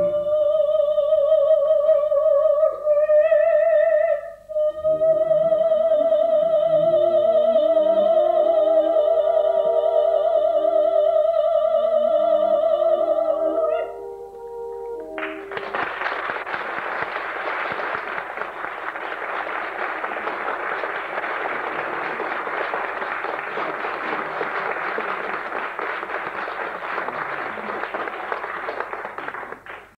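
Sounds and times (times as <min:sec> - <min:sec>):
audience applauding: 0:15.0 - 0:30.0.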